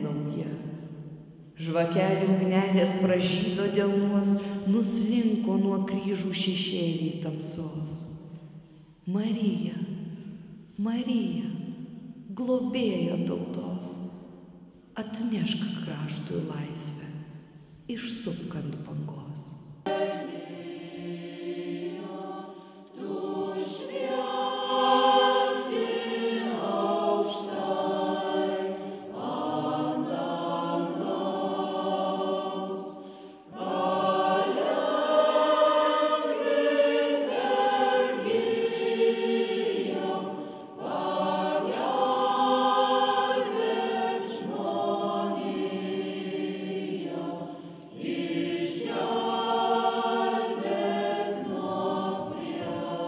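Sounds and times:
mixed choir singing: 19.8 - 53.0.

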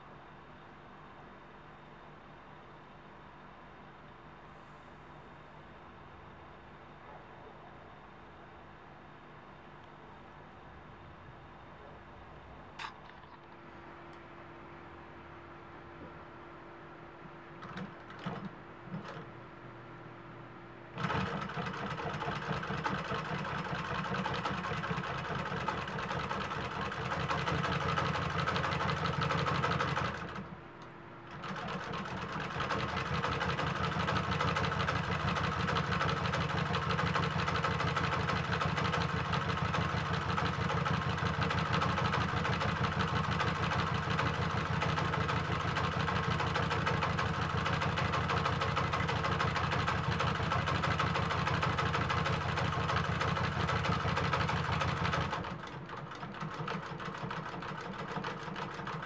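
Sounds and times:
sewing machine stitching: 17.6 - 19.3, 21.0 - 30.6, 31.3 - 59.0.

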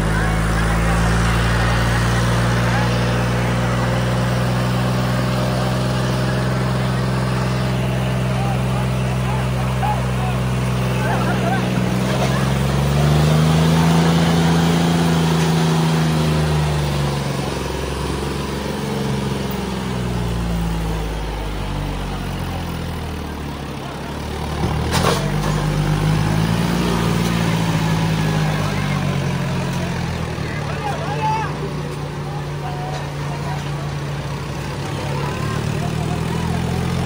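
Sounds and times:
tractor engines straining: 0.0 - 37.0.

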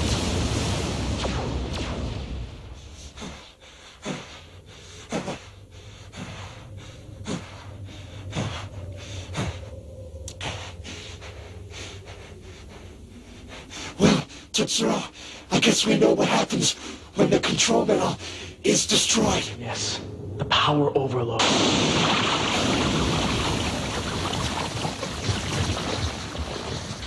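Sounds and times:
explosion rumble: 0.0 - 3.2, 19.3 - 27.0
low steady hum: 0.0 - 27.0
heavy panting: 2.8 - 15.5.

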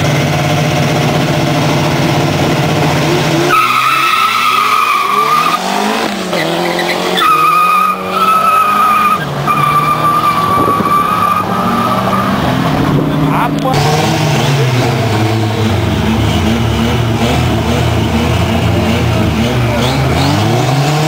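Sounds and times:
drag racing cars revving: 0.0 - 21.0
high-pitched squeal: 3.3 - 17.2.

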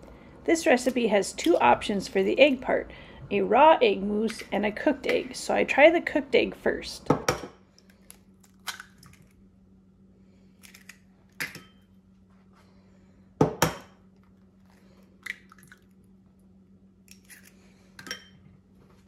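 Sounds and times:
eggs cracking over metal bowl: 7.7 - 9.4, 10.5 - 11.8, 13.6 - 16.2, 17.0 - 18.4.

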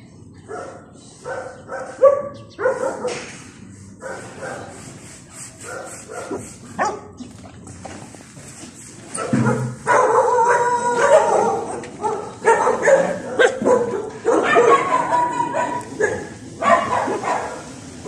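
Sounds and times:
dogs yipping and barking: 0.4 - 3.3, 5.4 - 7.2, 9.1 - 17.8
dogs whining: 9.9 - 17.3.

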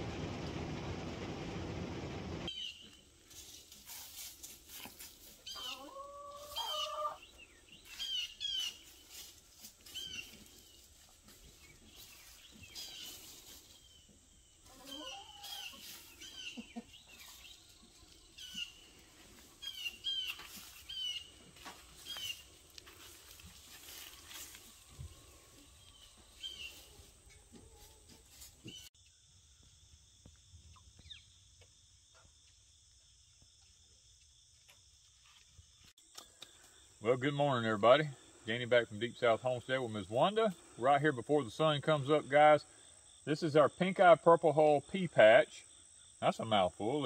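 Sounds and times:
heavy rain falling: 0.0 - 2.5
chickens scratching in dry leaves: 2.6 - 28.9
hen calls: 5.4 - 7.2.

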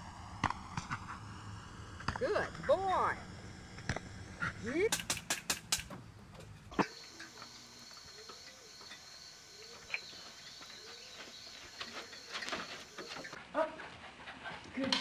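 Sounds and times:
high chirring of insects: 6.0 - 13.4.

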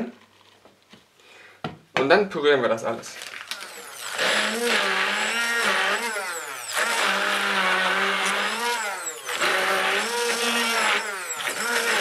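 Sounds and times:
immersion blender motor whine: 3.2 - 12.0.

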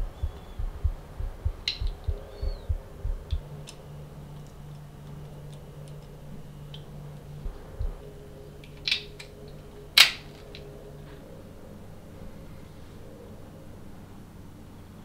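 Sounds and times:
dull low thuds: 0.0 - 3.6, 7.4 - 8.2
steady low hum: 0.0 - 15.0
small metal and plastic clicks: 3.3 - 6.9, 8.6 - 10.7.

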